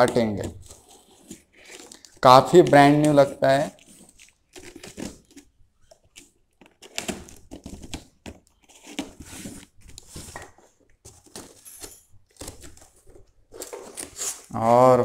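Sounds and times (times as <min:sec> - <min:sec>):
cardboard rustling: 0:00.0 - 0:15.0
tape crinkling and tearing: 0:00.4 - 0:10.1, 0:12.3 - 0:15.0
scissors slitting packing tape: 0:06.1 - 0:08.1.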